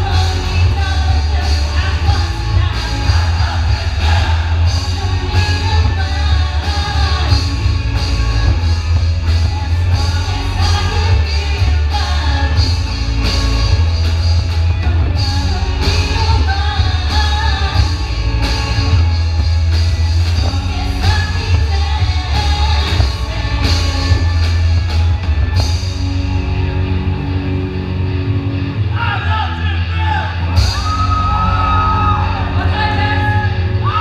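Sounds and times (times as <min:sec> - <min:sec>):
person singing: 0:00.0 - 0:13.9, 0:14.7 - 0:19.0
drums and cymbals: 0:00.0 - 0:27.6, 0:30.5 - 0:34.0
bass guitar: 0:00.0 - 0:34.0
electric guitars: 0:00.0 - 0:34.0.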